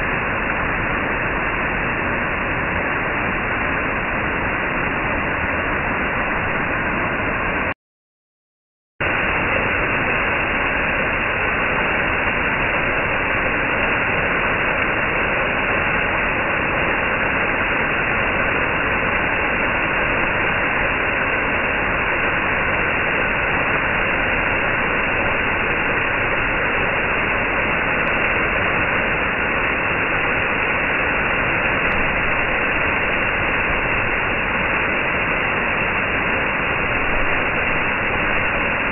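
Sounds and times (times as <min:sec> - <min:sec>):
waterfall splashing: 0:09.0 - 0:38.9.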